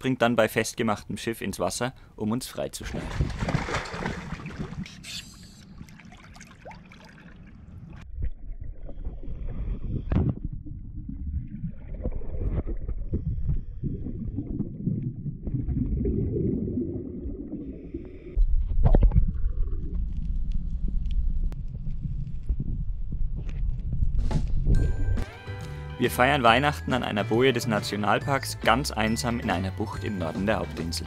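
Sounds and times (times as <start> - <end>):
heavy surge of water: 2.9 - 5.0, 5.6 - 8.0
splash into water: 2.9 - 8.0
muffled underwater sloshing: 2.9 - 20.2
low rumbling: 2.9 - 25.2
knocks underwater: 3.0 - 5.0, 8.0 - 16.7.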